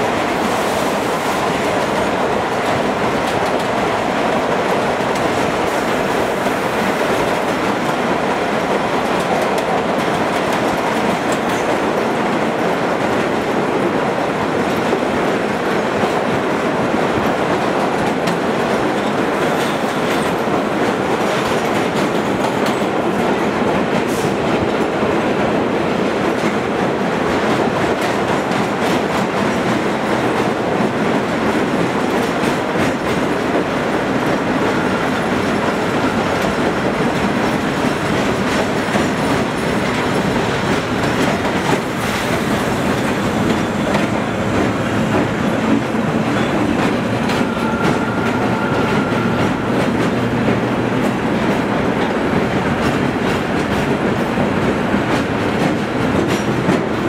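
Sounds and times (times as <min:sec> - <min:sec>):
subway train wheels rumbling on rail: 0:00.0 - 0:57.0
clatter over rail joints: 0:27.3 - 0:57.0.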